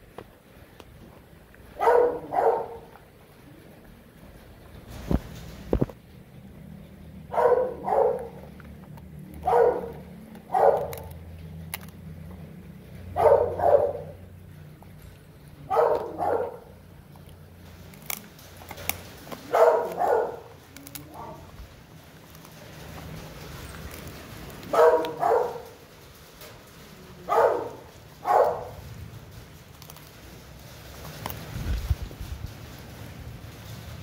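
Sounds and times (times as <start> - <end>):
dog barking: 1.8 - 2.9, 7.3 - 8.4, 9.4 - 11.1, 13.1 - 14.2, 15.7 - 16.8, 19.5 - 20.5, 24.7 - 25.7, 27.3 - 28.8.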